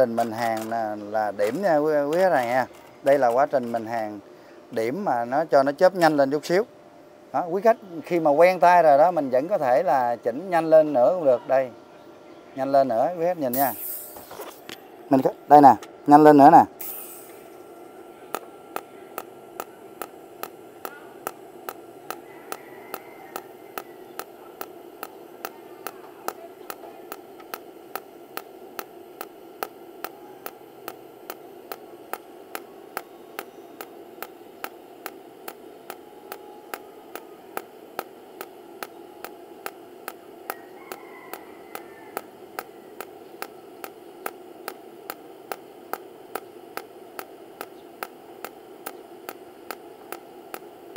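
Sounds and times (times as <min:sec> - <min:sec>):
welding arc pulses crackling: 0:00.0 - 0:06.6, 0:12.6 - 0:50.9
welder hiss: 0:13.4 - 0:14.6, 0:16.8 - 0:17.6.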